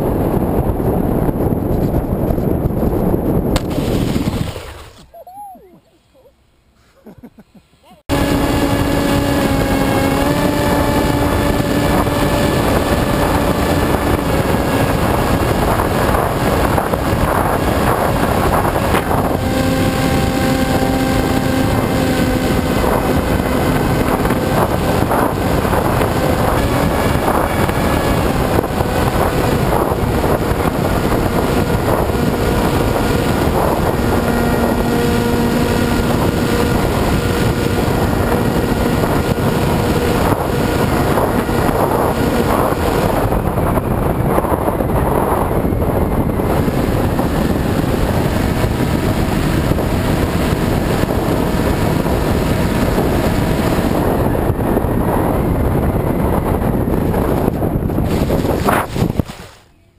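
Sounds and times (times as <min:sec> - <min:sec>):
wind rush: 0:00.0 - 0:05.8, 0:08.1 - 0:59.9
electric motor and propeller hum: 0:08.0 - 0:59.5.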